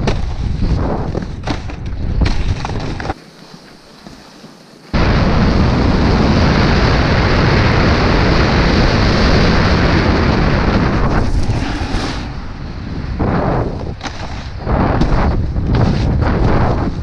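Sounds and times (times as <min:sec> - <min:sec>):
snowboard sliding over snow: 0:02.4 - 0:17.0
wind buffeting microphone: 0:05.0 - 0:17.0.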